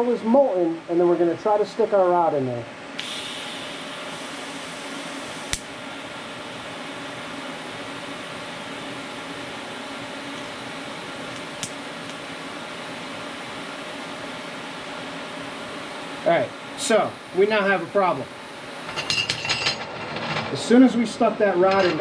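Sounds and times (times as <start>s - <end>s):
background hiss and hum: 0.0s - 22.0s
welder arc snap: 5.4s - 5.8s, 11.2s - 12.2s.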